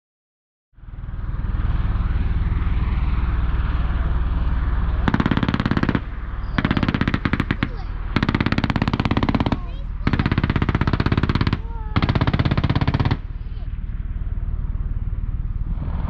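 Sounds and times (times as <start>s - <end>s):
aircraft low drone: 0.8s - 16.0s
machine gun bursts: 5.1s - 6.0s, 6.6s - 13.2s.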